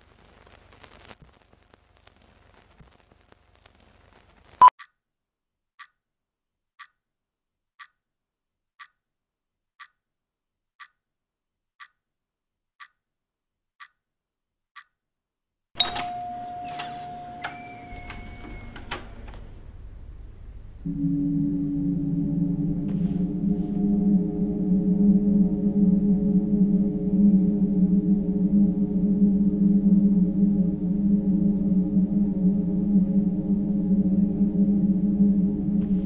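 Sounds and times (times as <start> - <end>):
clock ticking: 4.7 - 5.0, 5.8 - 6.0, 6.8 - 7.0, 7.8 - 8.0, 8.8 - 9.0, 9.8 - 10.0, 10.8 - 11.0, 11.8 - 12.0, 12.8 - 13.0, 13.8 - 14.0, 14.8 - 15.0
ringing gong-like tone: 20.8 - 36.0.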